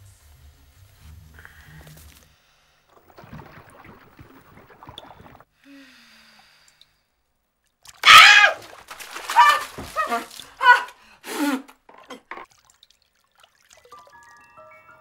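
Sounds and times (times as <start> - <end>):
faint water movement: 1.4 - 11.3, 11.9 - 14.6
bathwater splashing: 2.9 - 5.5, 7.8 - 11.2, 11.9 - 14.6
woman crying out: 9.2 - 11.0.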